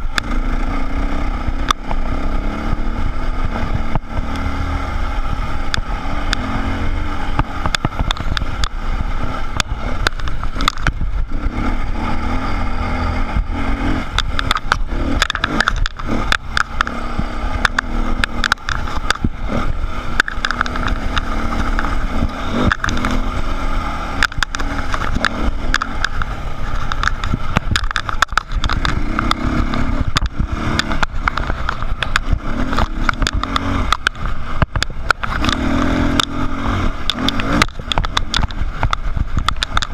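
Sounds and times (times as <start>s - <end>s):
dirt bike engine revving: 0.0s - 39.9s
bike knocks and rattles: 7.2s - 11.8s, 13.4s - 39.9s.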